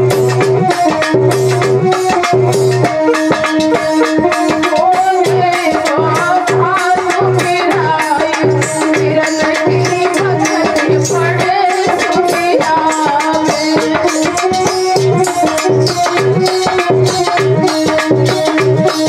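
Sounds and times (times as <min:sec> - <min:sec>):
jingling percussion: 0:00.0 - 0:19.0
tabla beat: 0:00.0 - 0:19.0
held accompanying tones: 0:00.3 - 0:06.8
woman singing: 0:03.8 - 0:14.4.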